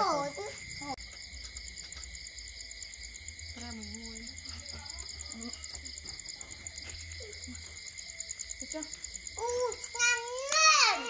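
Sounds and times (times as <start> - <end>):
crickets trilling: 0.0 - 11.0.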